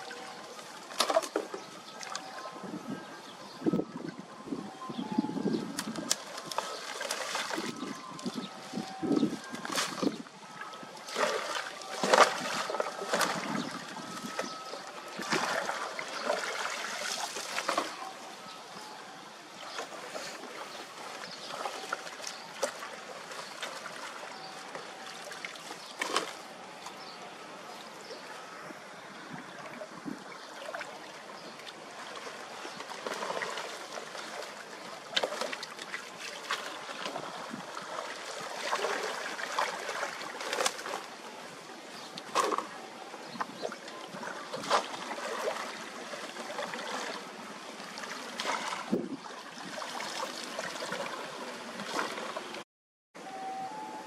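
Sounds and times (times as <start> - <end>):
sharp splashes and knocks: 0.9 - 2.2, 5.8 - 7.8, 9.5 - 10.2, 11.1 - 14.5, 15.2 - 18.0, 44.5 - 45.8
rake dragged through water: 5.8 - 10.2, 11.0 - 18.1, 25.1 - 26.5.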